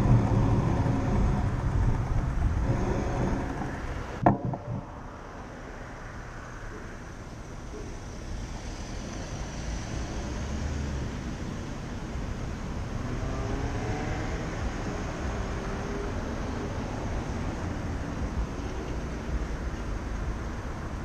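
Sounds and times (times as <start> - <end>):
cars driving past: 0.0 - 21.0.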